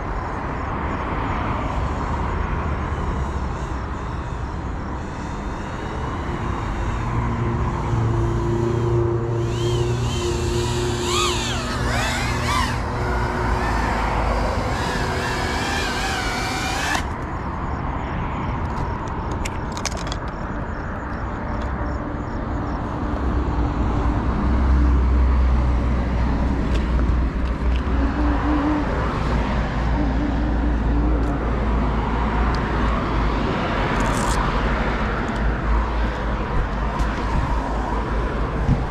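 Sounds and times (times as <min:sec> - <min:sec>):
drone motors whining: 0:01.8 - 0:17.5, 0:26.7 - 0:32.6.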